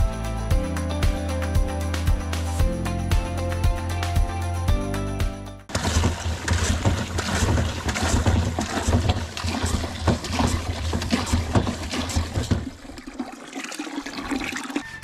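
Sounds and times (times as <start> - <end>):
water from hose into bucket: 5.7 - 15.0.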